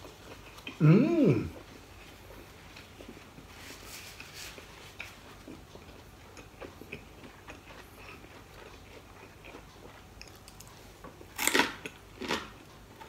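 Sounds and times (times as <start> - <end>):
hands rustling food wrap: 2.0 - 5.6.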